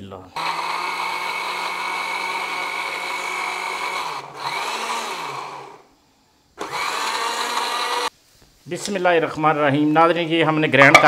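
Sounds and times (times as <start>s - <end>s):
electric blender grinding: 0.4s - 5.9s, 6.6s - 8.1s.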